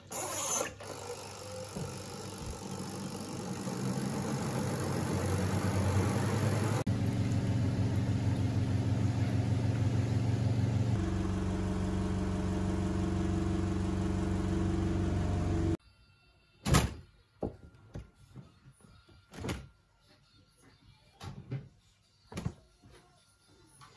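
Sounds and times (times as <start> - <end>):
washing machine motor humming: 0.0 - 15.8.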